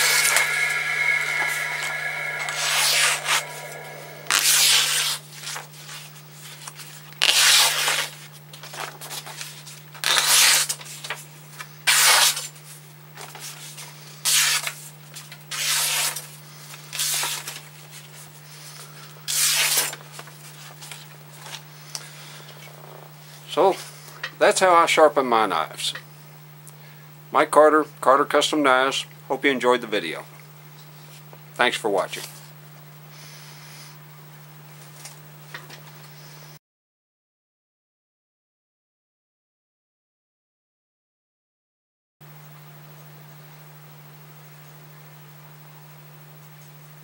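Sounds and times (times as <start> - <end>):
machine whine: 0.0 - 5.1.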